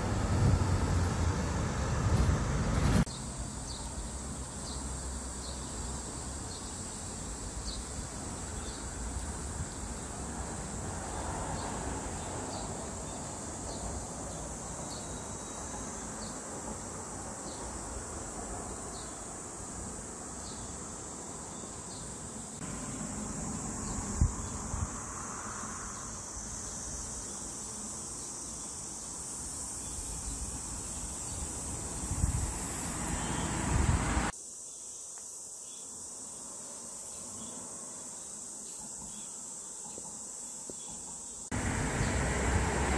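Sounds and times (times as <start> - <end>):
wind rumbling on microphone: 0.0 - 3.1, 23.7 - 25.2, 30.0 - 34.3
insects buzzing: 0.0 - 42.9.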